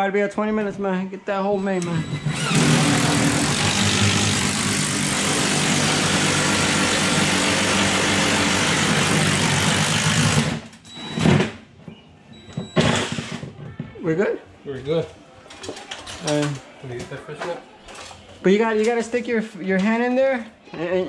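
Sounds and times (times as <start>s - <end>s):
power drill running under load: 1.8s - 10.6s.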